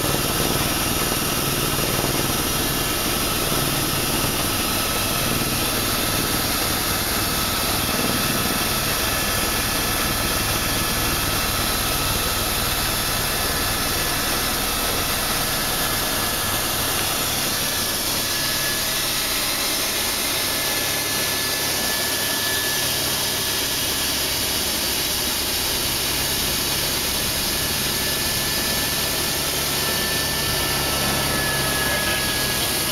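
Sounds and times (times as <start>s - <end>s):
helicopter engine and rotor: 0.0s - 32.9s
faint high whine: 1.7s - 32.9s.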